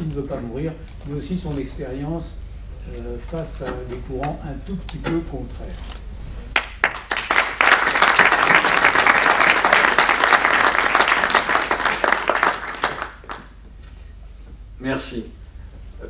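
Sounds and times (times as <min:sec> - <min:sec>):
audience applauding: 0:06.6 - 0:13.6.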